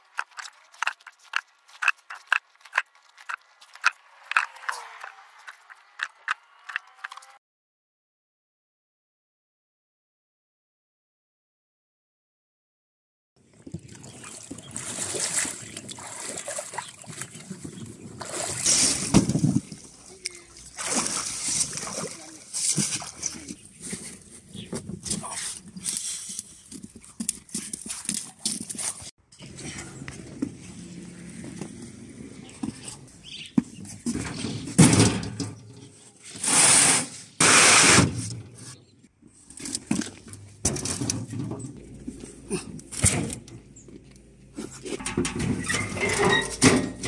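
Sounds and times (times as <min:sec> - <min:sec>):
person wading through water: 0:13.5 - 0:24.3
crate scraping on metal: 0:44.5 - 0:47.0.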